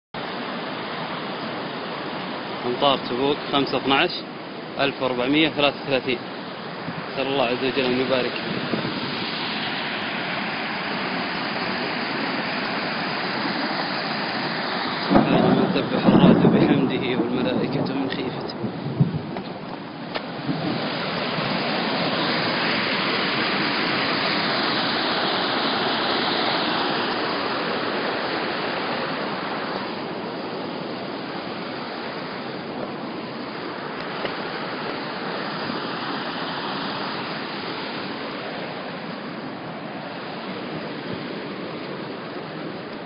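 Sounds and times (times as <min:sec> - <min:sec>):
water rushing over rock: 0:00.2 - 0:43.0.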